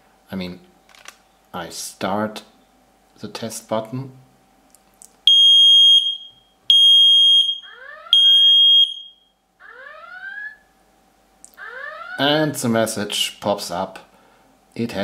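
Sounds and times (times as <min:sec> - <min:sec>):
smoke detector high-pitched beeps: 0:05.3 - 0:09.3
rising sweeping alert tones: 0:09.6 - 0:10.6, 0:11.6 - 0:12.6.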